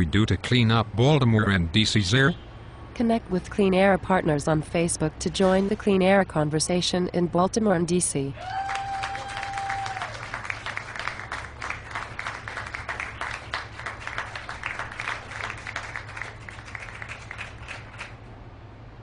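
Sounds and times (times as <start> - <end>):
audience applause: 8.4 - 18.1.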